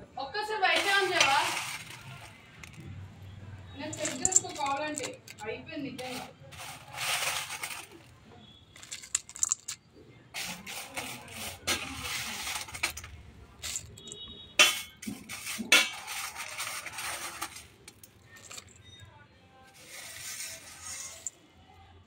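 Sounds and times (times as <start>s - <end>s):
dry noodles crackling and rustling: 0.7s - 2.9s.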